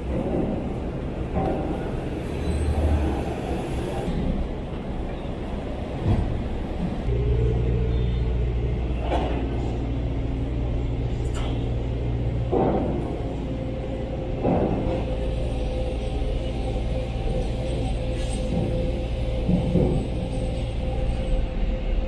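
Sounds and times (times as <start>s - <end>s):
low engine hum: 0.0s - 22.0s.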